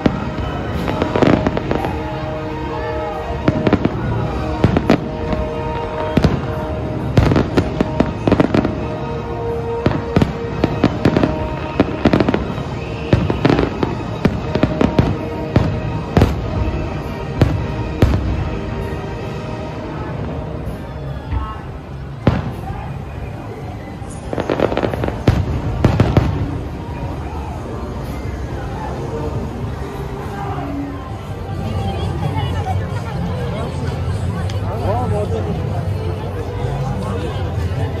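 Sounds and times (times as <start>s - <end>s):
fireworks bangs and crackling: 0.0s - 21.4s, 22.0s - 29.5s
music with sustained notes: 0.0s - 38.0s.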